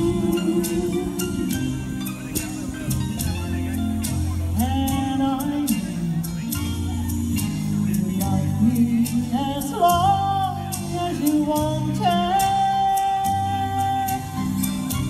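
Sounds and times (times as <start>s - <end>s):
backing music with drum beat: 0.0s - 15.0s
woman singing through pa: 8.3s - 14.4s.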